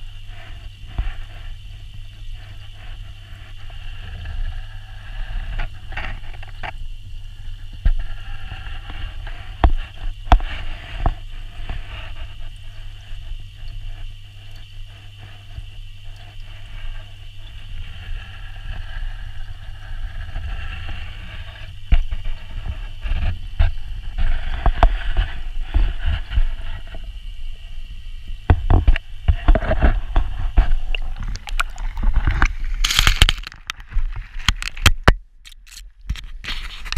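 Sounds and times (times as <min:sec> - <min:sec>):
low underwater rumble: 0:00.0 - 0:34.8
underwater knocks and clicks: 0:08.8 - 0:14.7, 0:20.2 - 0:27.0, 0:28.4 - 0:36.9.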